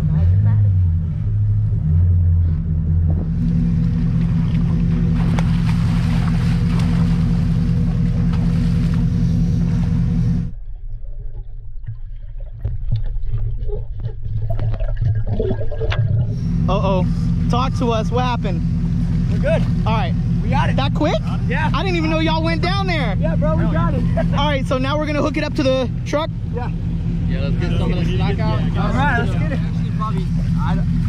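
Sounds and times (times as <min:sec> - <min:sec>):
truck engine idling: 0:00.0 - 0:10.6, 0:15.9 - 0:31.0
water splashing: 0:03.3 - 0:16.7
underwater clicks and knocks: 0:11.2 - 0:16.4.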